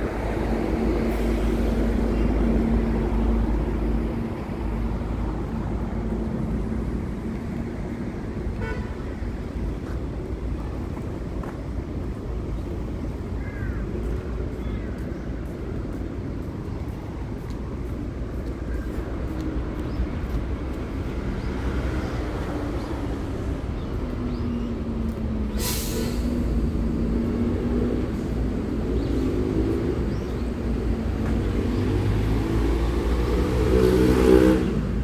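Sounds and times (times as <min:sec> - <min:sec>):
traffic rumble: 0:00.0 - 0:35.0
vehicle accelerating: 0:24.9 - 0:35.0
bus air brakes hissing: 0:25.4 - 0:26.8.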